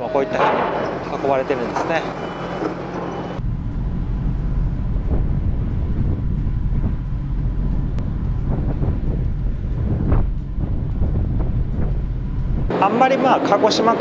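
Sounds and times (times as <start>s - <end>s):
ship machinery hum: 0.0s - 14.0s
wind buffeting microphone: 3.4s - 12.8s.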